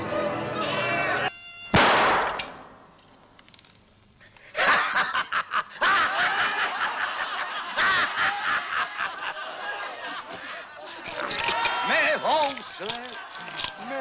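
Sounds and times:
group of men laughing: 0:04.4 - 0:14.0.

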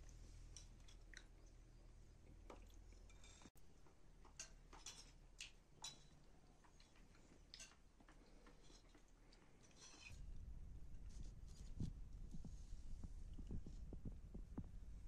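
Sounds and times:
low room hum: 0:00.0 - 0:15.0
spoons clinking on ceramic bowls: 0:04.2 - 0:05.2.

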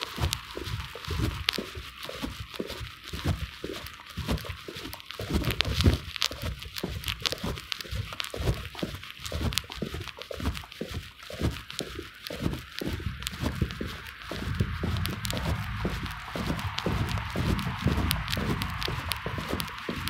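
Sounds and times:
footsteps on brick paving: 0:00.0 - 0:20.0
microphone handling thumps: 0:13.0 - 0:20.0.

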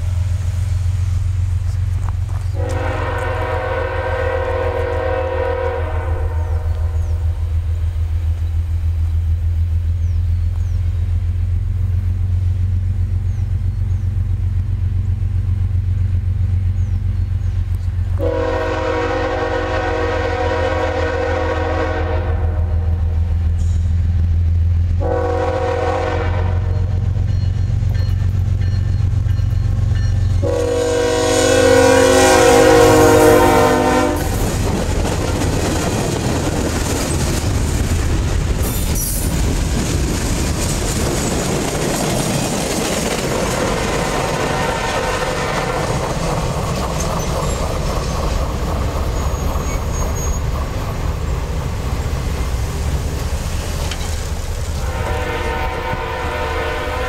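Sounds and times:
train rumble: 0:00.0 - 0:57.0
locomotive air horn: 0:02.5 - 0:07.2, 0:18.2 - 0:23.2, 0:25.0 - 0:27.1, 0:30.4 - 0:34.5, 0:44.3 - 0:45.7, 0:54.7 - 0:57.0
wheels rolling on rails: 0:34.3 - 0:54.8.

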